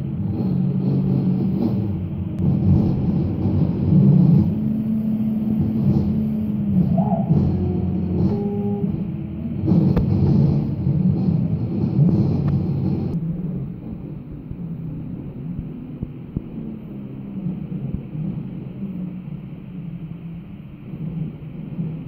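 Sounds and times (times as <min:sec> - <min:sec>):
cnc router motors humming: 0:00.0 - 0:13.5
short pitched motor tones: 0:03.0 - 0:11.6.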